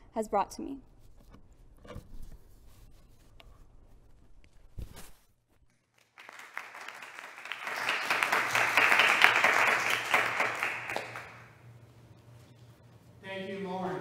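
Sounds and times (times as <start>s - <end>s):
applause: 5.9s - 11.6s.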